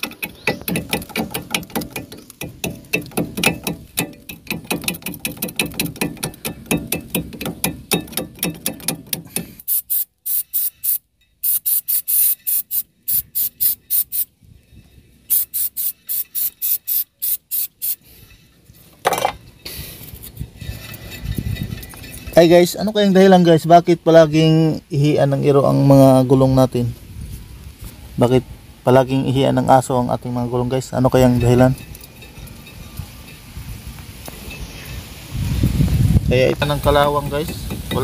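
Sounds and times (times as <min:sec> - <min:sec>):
fast metallic clicks: 0:00.0 - 0:14.3
aerosol spray can hissing: 0:09.6 - 0:14.3, 0:15.3 - 0:18.0.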